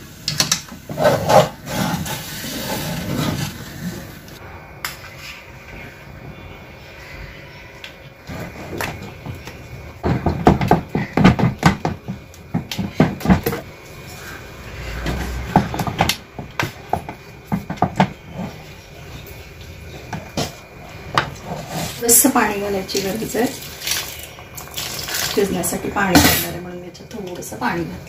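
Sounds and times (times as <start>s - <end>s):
spoon knocking and scraping pot: 8.3s - 13.6s, 15.2s - 18.7s.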